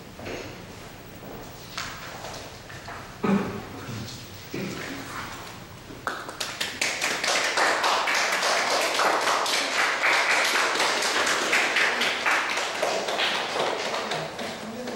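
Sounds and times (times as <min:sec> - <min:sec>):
audience clapping: 0:06.0 - 0:14.9.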